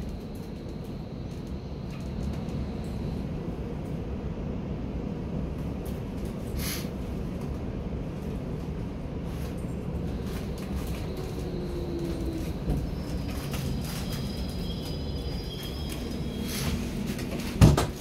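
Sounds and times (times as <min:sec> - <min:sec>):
faint train whine: 0:00.0 - 0:18.0
train running rumble: 0:00.0 - 0:18.0
high brake squealing: 0:10.1 - 0:17.6.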